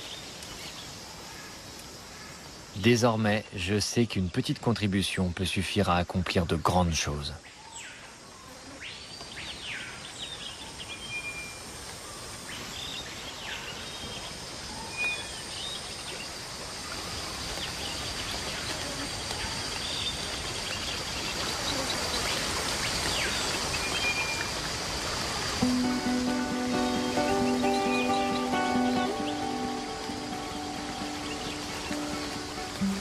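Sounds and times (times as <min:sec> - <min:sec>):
high insect drone: 0:11.2 - 0:33.0
running water: 0:11.4 - 0:33.0
bird calls: 0:25.6 - 0:33.0.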